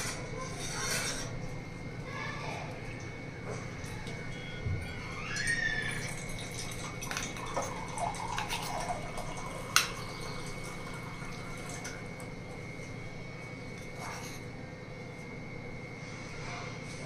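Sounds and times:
spoon scraping steel bowl: 0.0 - 1.4, 13.8 - 14.5.

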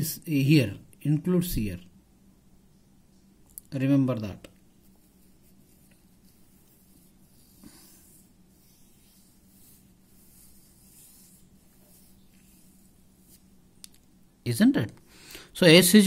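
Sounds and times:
low steady hum: 0.0 - 16.0
pen scratching on paper: 5.0 - 13.5.

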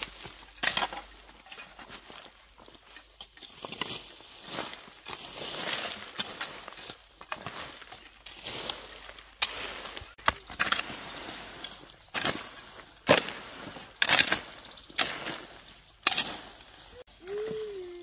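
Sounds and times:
dirt and plants rustling: 0.0 - 18.0
hoe chopping into soil: 9.4 - 16.6.

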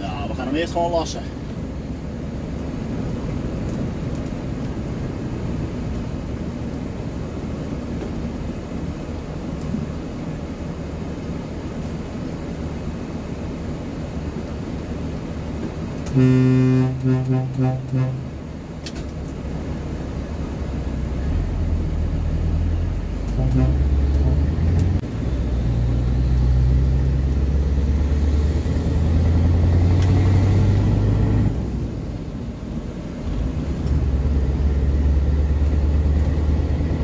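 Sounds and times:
vehicle horn: 16.1 - 18.3, 23.3 - 24.5.

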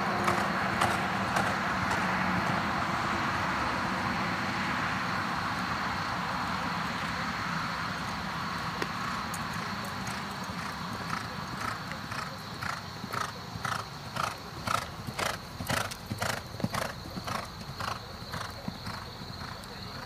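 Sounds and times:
horse hoofbeats on dirt: 0.0 - 2.9, 7.9 - 20.0.

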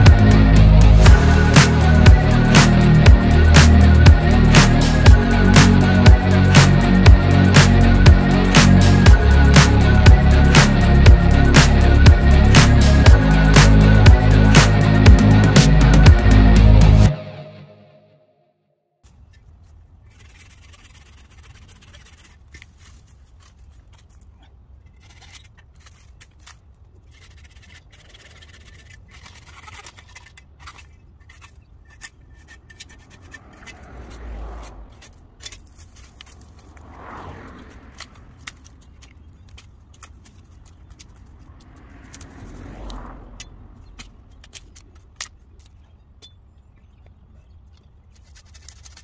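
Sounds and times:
low steady rumble: 0.0 - 17.1
branches clicking and snapping: 19.1 - 49.0.

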